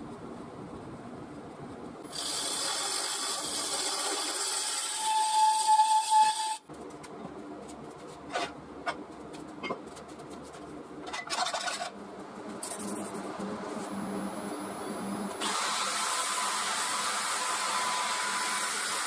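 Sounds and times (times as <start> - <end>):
lathe tool cutting wood bowl: 2.2 - 6.6, 15.4 - 19.0.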